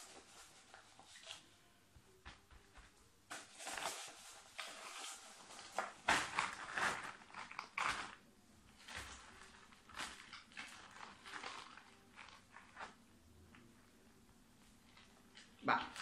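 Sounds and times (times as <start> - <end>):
plastic plant pot rustling: 0.0 - 1.5, 3.3 - 13.0
potting soil crumbling: 3.5 - 13.7.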